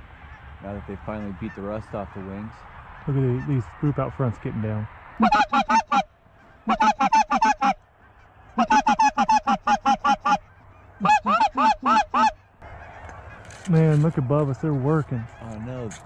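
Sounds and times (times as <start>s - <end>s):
goose call honks and clucks: 1.0s - 1.9s, 3.0s - 4.0s, 5.1s - 16.0s.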